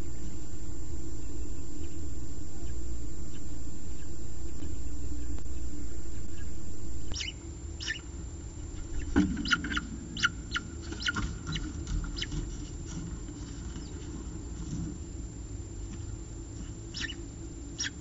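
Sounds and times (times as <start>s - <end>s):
rumbling hiss: 0.0s - 18.0s
falcon chicks chirping: 6.1s - 14.8s, 15.9s - 18.0s.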